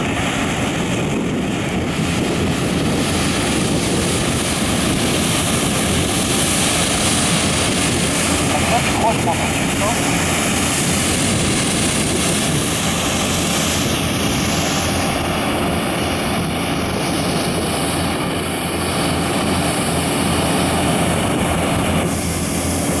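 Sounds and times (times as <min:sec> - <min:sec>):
engine noise with rushing hiss: 0:00.0 - 0:23.0.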